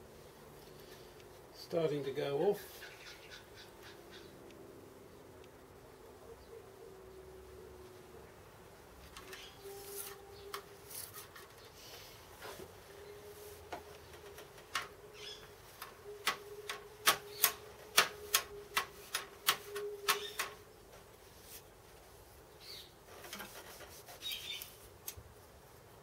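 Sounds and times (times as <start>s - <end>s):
bird chirps: 9.3s - 10.6s, 15.0s - 20.6s.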